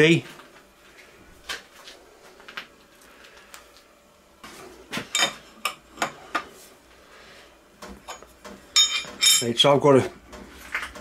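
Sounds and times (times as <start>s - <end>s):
spanner clinking on metal nut: 8.8s - 9.5s.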